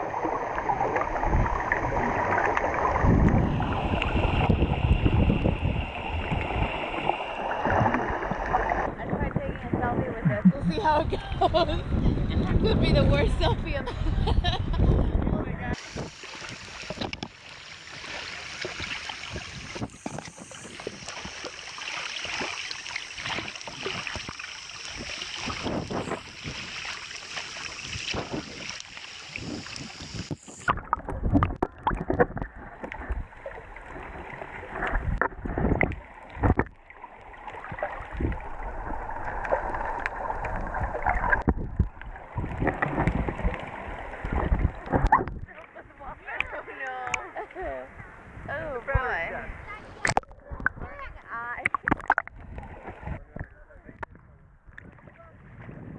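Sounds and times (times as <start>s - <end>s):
water sloshing and bubbling: 0.0s - 55.9s
knocks and thumps on camera: 10.2s - 11.0s.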